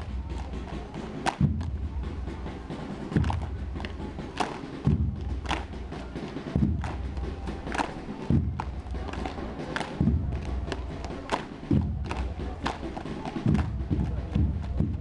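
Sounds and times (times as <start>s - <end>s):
sharp hand slaps: 1.2s - 1.7s, 3.2s - 4.7s, 5.4s - 5.7s, 7.7s - 8.0s, 8.6s - 10.0s, 10.7s - 13.7s.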